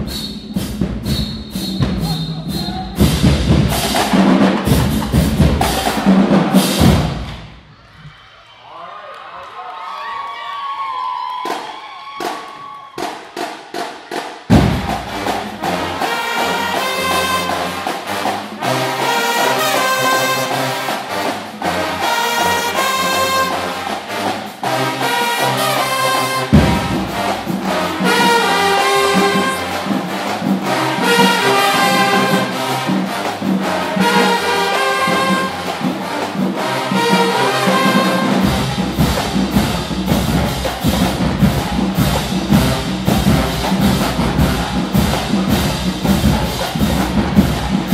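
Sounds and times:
drum strokes: 0:00.0 - 0:07.7, 0:13.0 - 0:47.9
marching band playing: 0:00.0 - 0:07.7, 0:12.2 - 0:47.9
low brass: 0:14.5 - 0:47.9.

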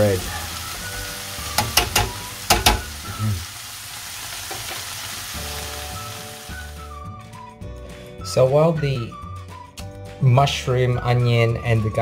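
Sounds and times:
vegetables sizzling in a frying pan: 0:00.0 - 0:06.9
spatula knocking against pan: 0:01.6 - 0:02.9.

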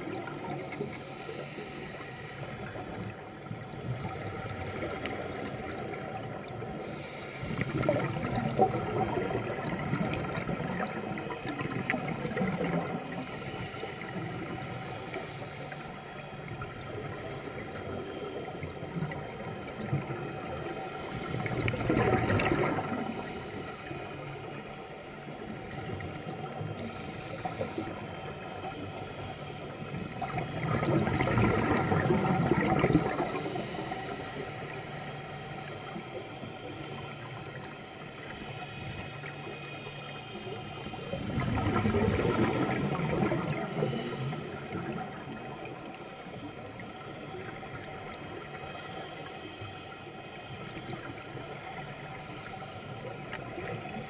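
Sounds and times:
underwater hiss and hum: 0:00.0 - 0:54.0
diver's exhaled bubbles: 0:21.4 - 0:23.2, 0:30.2 - 0:33.4, 0:41.1 - 0:45.1.

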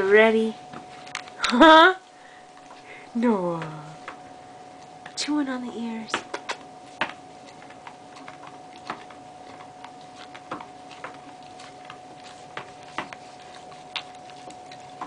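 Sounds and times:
dog chewing plush toy: 0:06.6 - 0:15.0.

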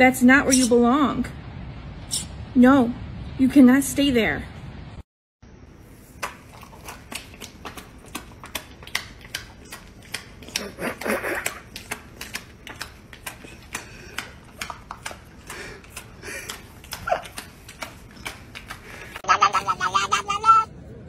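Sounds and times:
dog clicking sounds: 0:06.2 - 0:19.2.

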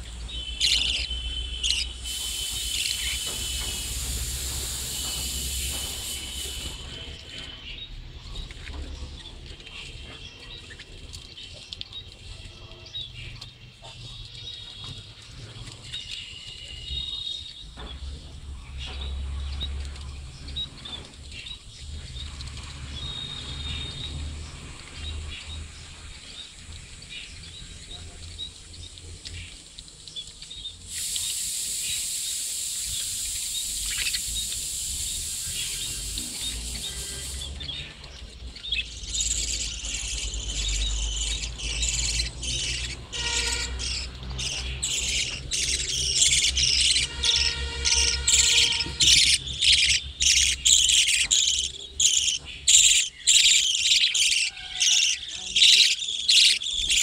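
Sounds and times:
budgerigars chirping: 0:00.0 - 0:07.6, 0:31.0 - 0:57.0
steady hiss: 0:01.2 - 0:07.8, 0:30.8 - 0:37.9.

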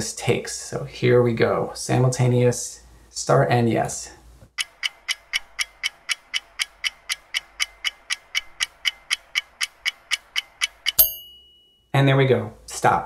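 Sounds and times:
clock ticking: 0:04.6 - 0:11.7.

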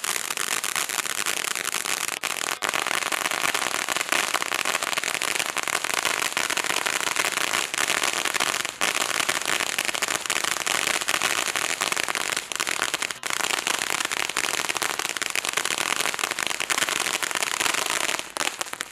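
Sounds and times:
firework fountain crackling and hissing: 0:00.0 - 0:18.9.

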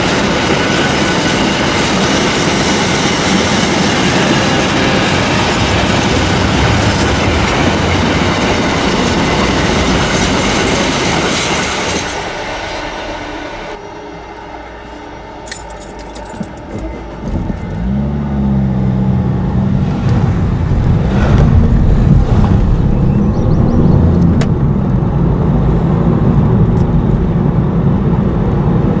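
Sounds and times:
road rumble: 0:03.0 - 0:29.0
car engine accelerating: 0:16.2 - 0:29.0.

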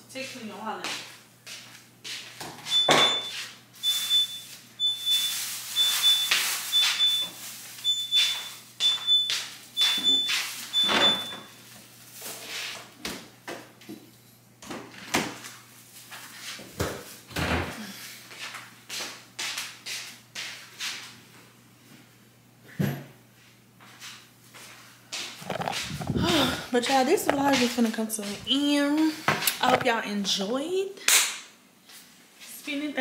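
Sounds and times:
fridge alarm beeping: 0:02.7 - 0:11.8, 0:26.1 - 0:26.6, 0:28.4 - 0:29.0.

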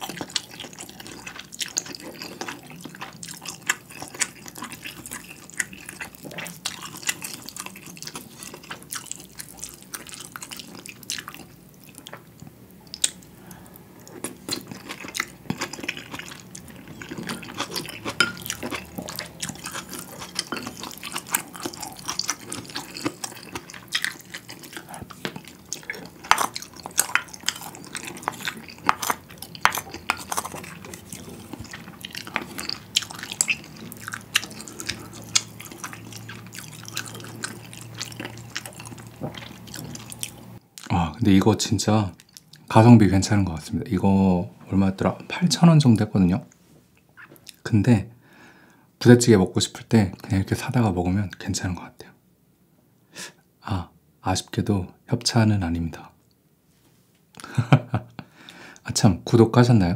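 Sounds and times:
wet chewing: 0:00.0 - 0:40.9, 0:42.1 - 0:42.7.

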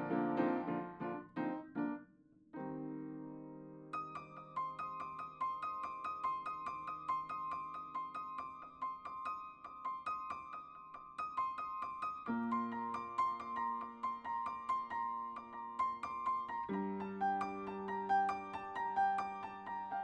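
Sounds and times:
solo piano music: 0:00.0 - 0:20.0.

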